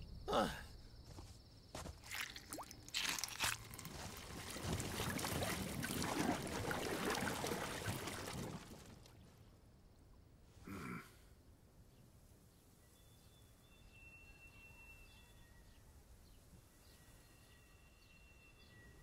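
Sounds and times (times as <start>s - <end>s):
wet crackling sound effect: 2.0s - 9.1s.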